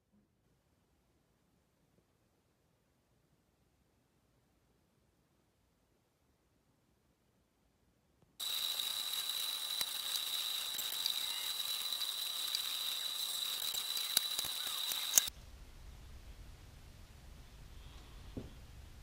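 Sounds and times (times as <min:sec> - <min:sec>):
cutting machine whine: 0:08.4 - 0:15.3
machine clicks: 0:08.4 - 0:15.3.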